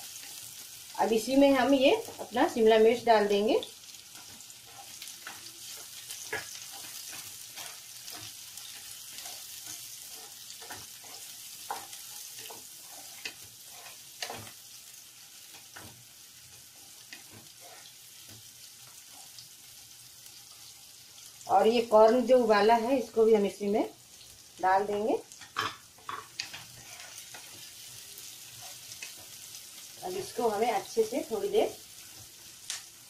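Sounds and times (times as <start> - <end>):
vegetables sizzling in oil: 0.0 - 33.0
wooden spatula scraping pan: 4.2 - 14.6, 15.5 - 18.4, 25.6 - 27.7.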